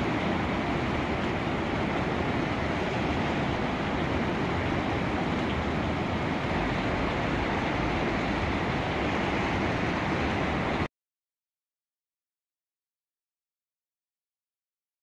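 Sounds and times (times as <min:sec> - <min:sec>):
river pouring over a weir: 0:00.0 - 0:10.9.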